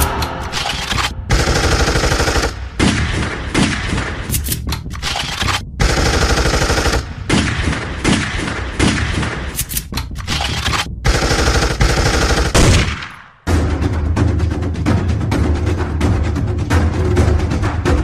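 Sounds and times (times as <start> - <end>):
recorded machine-gun fire: 1.3 - 4.1, 5.0 - 9.5, 10.4 - 13.4.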